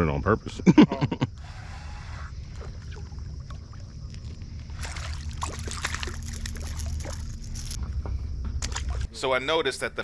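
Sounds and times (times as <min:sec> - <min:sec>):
water splashing and sloshing: 0:02.3 - 0:09.2.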